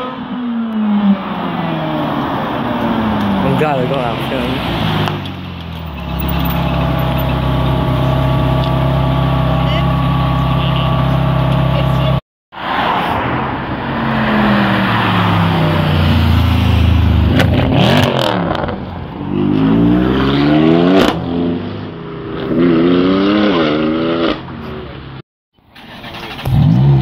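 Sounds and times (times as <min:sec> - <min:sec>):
car engine accelerating: 0:00.0 - 0:12.2.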